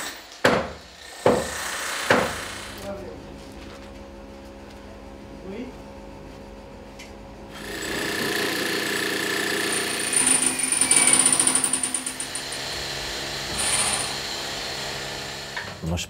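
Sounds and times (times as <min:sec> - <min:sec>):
angle grinder cutting steel: 0:07.6 - 0:15.8.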